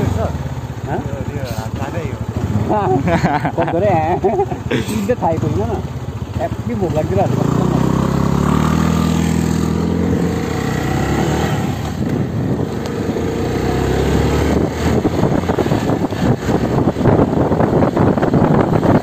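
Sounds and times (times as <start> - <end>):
motorcycle engine running: 0.0 - 19.0
wind buffeting microphone: 7.4 - 19.0.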